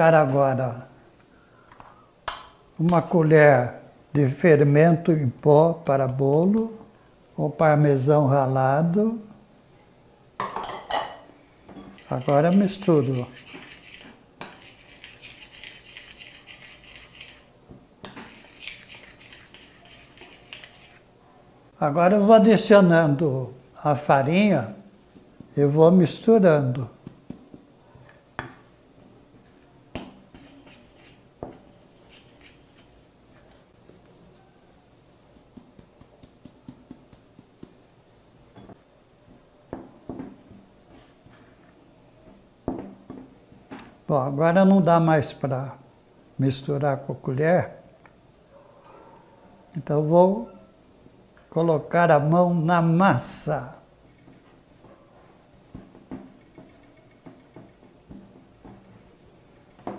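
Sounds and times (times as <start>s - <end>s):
metal spoon stirring in glass bowl: 11.8s - 21.0s.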